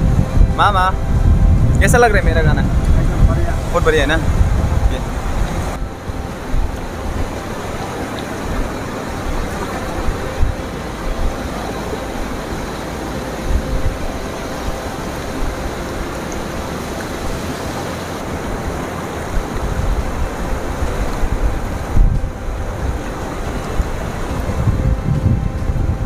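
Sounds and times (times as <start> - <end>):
fast river rushing: 0.0 - 26.0
wind buffeting microphone: 0.0 - 26.0.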